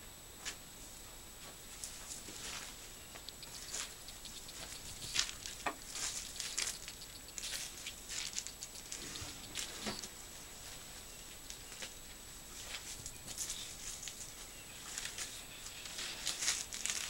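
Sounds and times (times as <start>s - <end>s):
dry leaves rustling and crackling: 3.5s - 17.0s
deep crunches of leaves: 4.6s - 10.0s, 12.5s - 17.0s.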